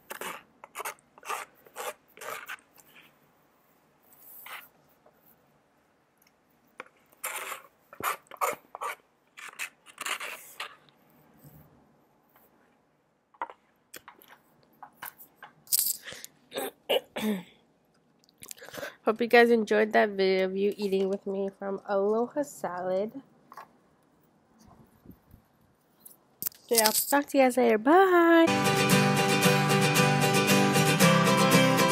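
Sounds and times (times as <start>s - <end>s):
plastic spoon on bowl: 0.0s - 3.1s, 6.8s - 11.0s.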